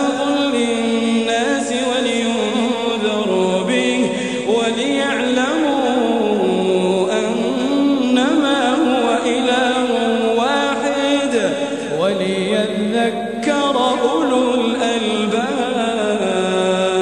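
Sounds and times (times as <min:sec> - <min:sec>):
man chanting melodically: 0:00.0 - 0:17.0
breaths between phrases: 0:04.1 - 0:04.5, 0:11.6 - 0:12.0.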